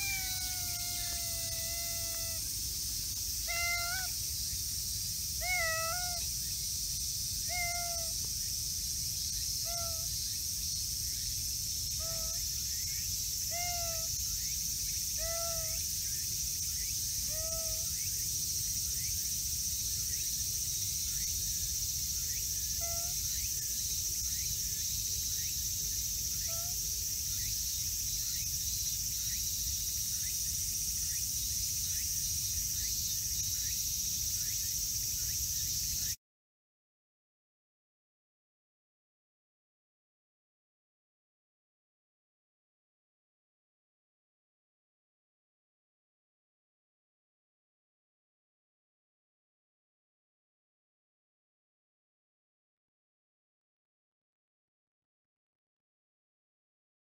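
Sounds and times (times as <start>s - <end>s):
cat meowing: 0.0s - 2.5s, 3.4s - 4.2s, 5.4s - 6.3s, 7.4s - 8.2s, 9.6s - 10.1s, 12.0s - 12.4s, 13.5s - 14.1s, 15.2s - 15.8s, 17.3s - 17.9s, 22.8s - 23.2s, 26.4s - 26.8s
insects hissing: 0.0s - 36.2s.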